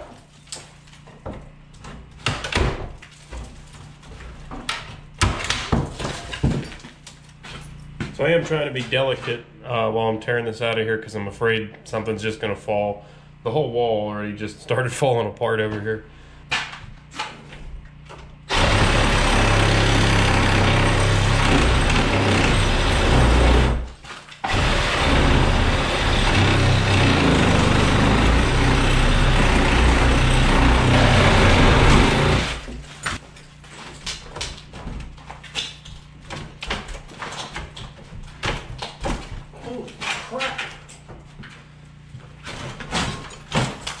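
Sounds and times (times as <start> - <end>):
knocks and rattles: 18.1 - 41.4
cordless power tool running: 18.5 - 32.8.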